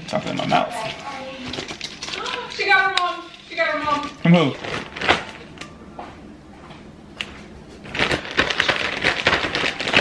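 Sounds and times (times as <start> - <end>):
cereal rattling in plastic bag: 7.9 - 10.0.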